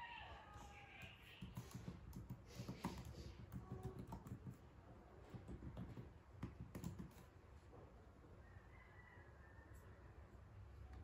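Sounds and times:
laptop keyboard typing: 0:01.0 - 0:07.3.

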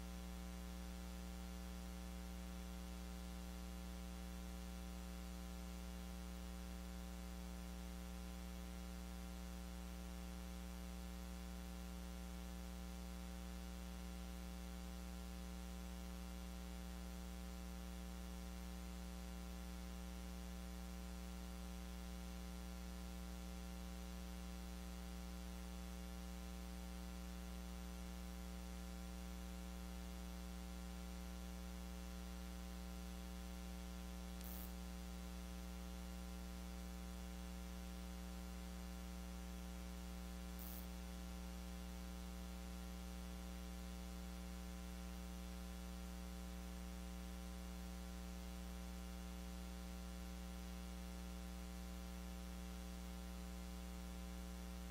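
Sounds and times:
electrical mains hum: 0:00.0 - 0:54.9
faint hiss: 0:34.2 - 0:35.0, 0:40.5 - 0:41.0
faint ticks: 0:34.3 - 0:34.8.

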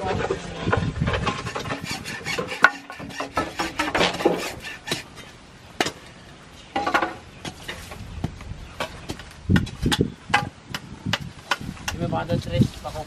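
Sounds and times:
wood scraping and rasping: 0:00.0 - 0:05.4.

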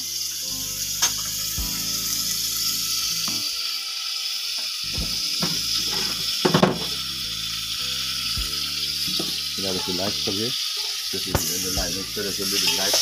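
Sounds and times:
meat sizzling in a pan: 0:00.0 - 0:13.0.

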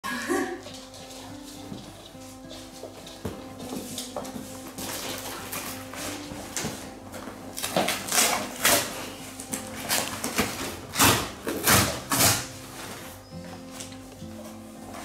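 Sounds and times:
cardboard box tearing: 0:07.6 - 0:13.2.

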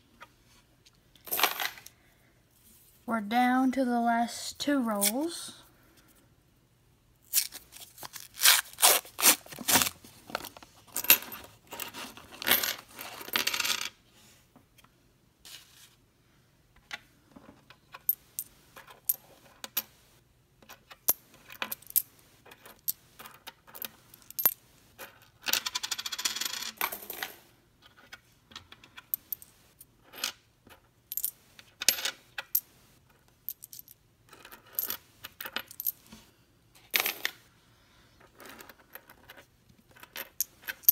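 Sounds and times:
coins clinking on a wooden table: 0:01.2 - 0:01.9, 0:11.0 - 0:14.0, 0:20.6 - 0:36.1, 0:36.9 - 0:37.4, 0:38.2 - 0:40.9.

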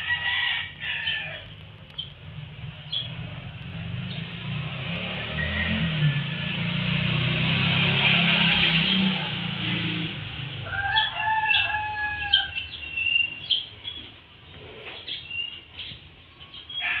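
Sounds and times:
rooster crowing: 0:00.0 - 0:01.5, 0:10.6 - 0:12.8, 0:16.8 - 0:17.0
small birds chirping: 0:00.8 - 0:04.5, 0:10.7 - 0:17.0.

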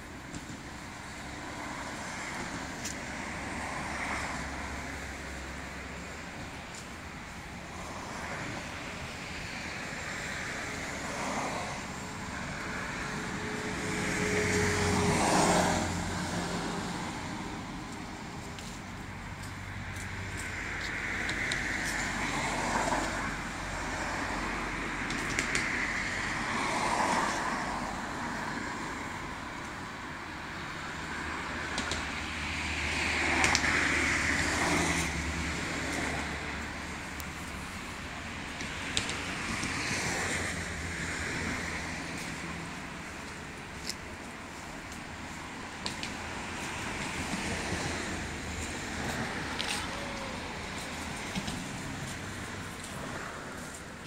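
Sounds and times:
vehicles passing: 0:00.0 - 0:54.0.

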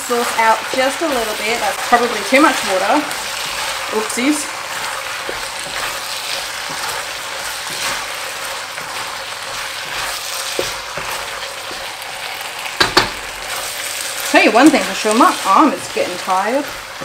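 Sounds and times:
food sizzling in a wok: 0:00.0 - 0:17.0
wooden spatula scraping: 0:00.0 - 0:17.0
sharp knocks: 0:12.8 - 0:13.2.

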